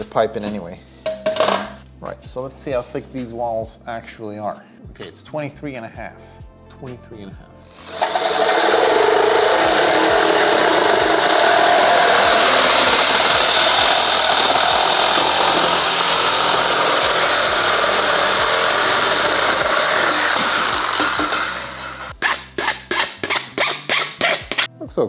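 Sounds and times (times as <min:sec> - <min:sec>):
reciprocating saw cutting metal duct: 0:07.7 - 0:24.7.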